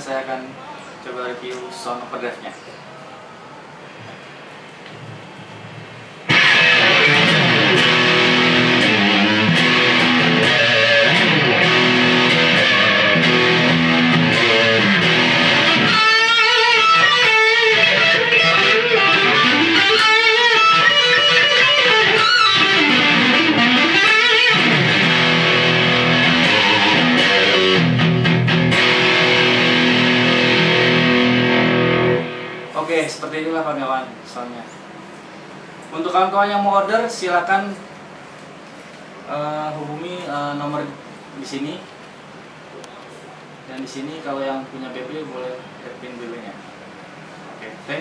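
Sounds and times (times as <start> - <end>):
overdriven electric guitar: 6.2 - 32.8.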